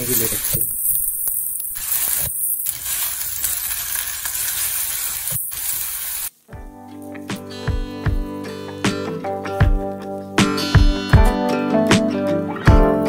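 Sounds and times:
flatbread sizzling in a pan: 0.0 - 7.3
background music: 6.5 - 13.0.

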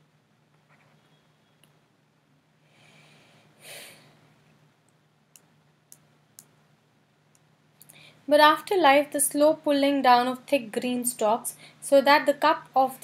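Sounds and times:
person breathing through nose: 2.7 - 4.2.

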